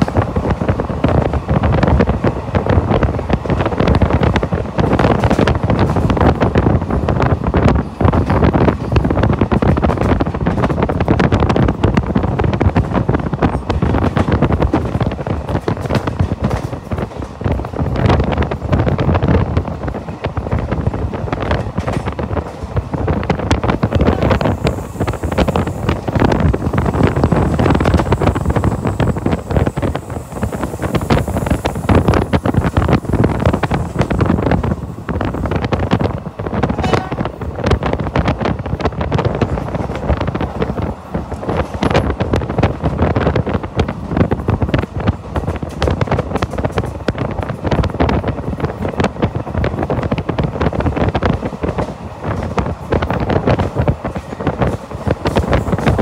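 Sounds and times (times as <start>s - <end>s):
train rumbling and clattering: 0.0s - 56.0s
wind buffeting microphone: 0.0s - 56.0s.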